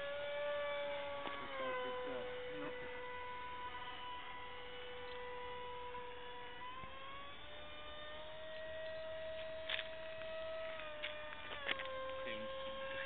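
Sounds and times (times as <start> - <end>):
electric motor and propeller whining: 0.0 - 13.0.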